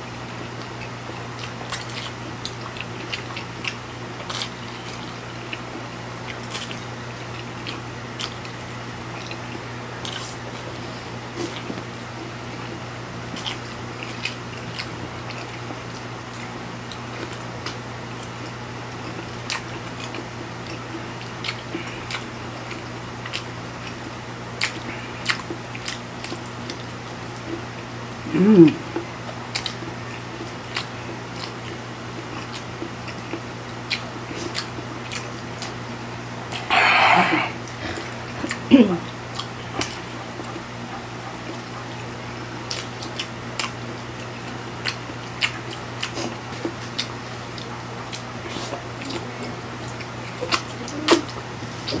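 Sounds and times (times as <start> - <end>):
steady low hum: 0.0 - 52.0
chewing and biting food: 0.3 - 52.0
short falling vocal sound: 28.3 - 28.8, 36.6 - 37.6.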